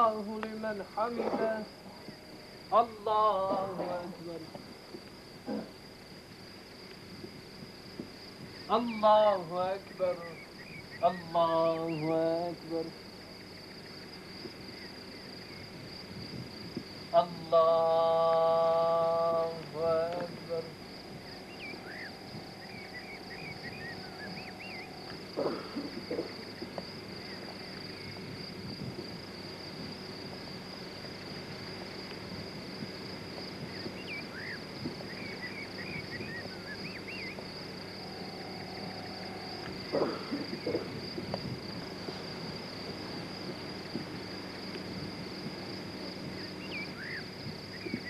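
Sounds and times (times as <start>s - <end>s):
steady high-pitched whine: 0.0s - 48.0s
songbird twittering: 9.8s - 12.3s, 19.8s - 28.2s, 33.6s - 37.4s, 46.6s - 48.0s.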